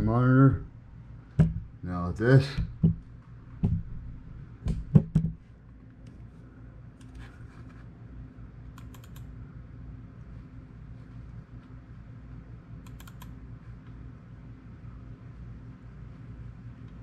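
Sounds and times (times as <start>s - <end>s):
low electrical hum: 0.0s - 17.0s
heavy thumps: 1.4s - 1.8s, 2.5s - 5.5s
keyboard typing: 8.8s - 9.3s, 12.8s - 13.4s.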